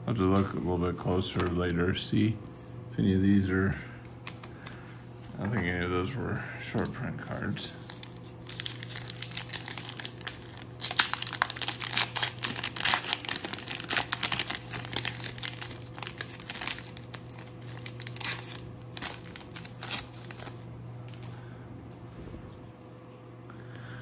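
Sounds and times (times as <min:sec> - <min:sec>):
cards being handled: 0:00.3 - 0:01.7, 0:04.0 - 0:05.9, 0:06.7 - 0:21.4
wrapper crinkling: 0:06.7 - 0:21.4.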